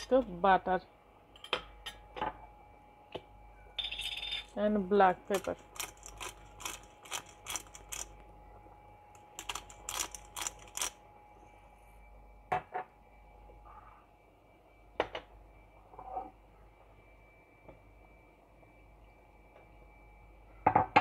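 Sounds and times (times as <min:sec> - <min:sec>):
pepper mill grinding clicks: 0:05.3 - 0:08.1, 0:09.4 - 0:11.0.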